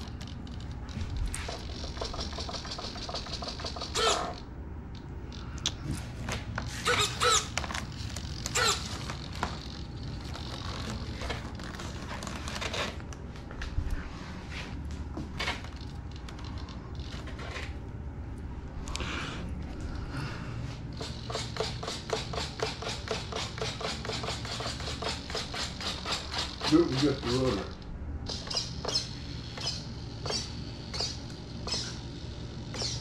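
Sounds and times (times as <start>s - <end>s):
short pitched whirs: 0.0s - 13.2s, 20.9s - 33.0s.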